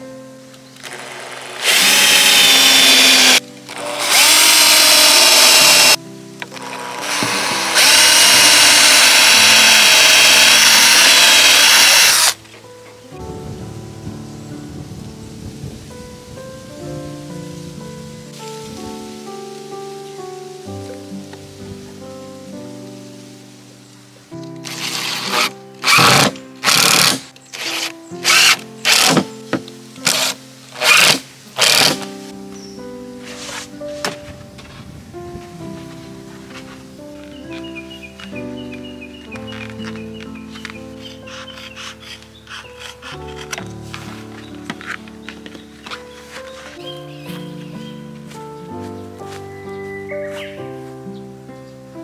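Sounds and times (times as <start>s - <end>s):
drill motor whine: 0.8s - 6.0s, 6.6s - 12.4s, 24.7s - 29.2s.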